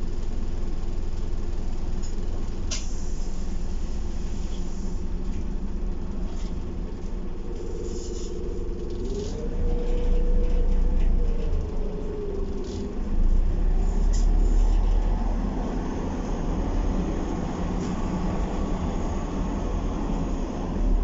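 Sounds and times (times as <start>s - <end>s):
bus diesel engine rumble: 0.0s - 21.0s
rising whine: 6.8s - 21.0s.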